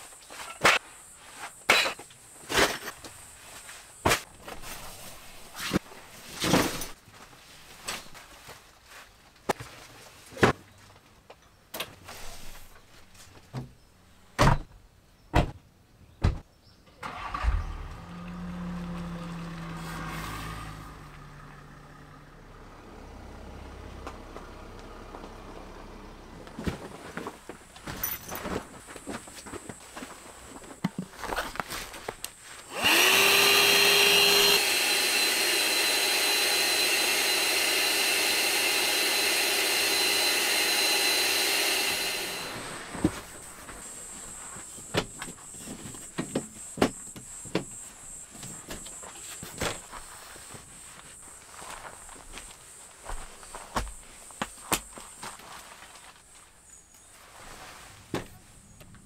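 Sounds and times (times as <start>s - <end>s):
car engine starting and running: 17.0s - 26.6s.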